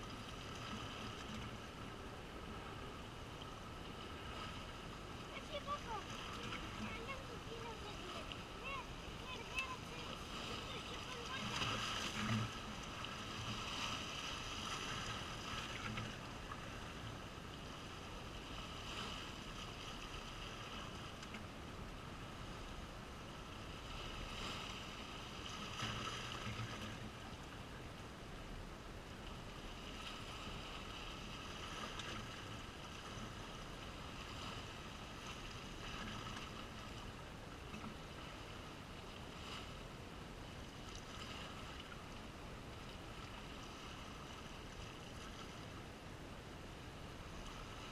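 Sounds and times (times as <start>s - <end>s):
sea waves splashing over rocks: 0.0s - 21.4s.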